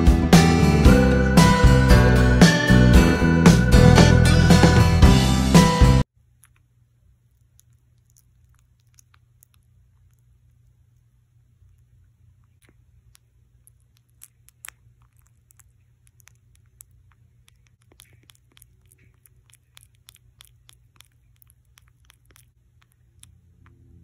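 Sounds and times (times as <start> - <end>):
low steady hum: 0.0 - 24.0
kitten mouth wet clicks: 6.3 - 11.0, 11.6 - 24.0.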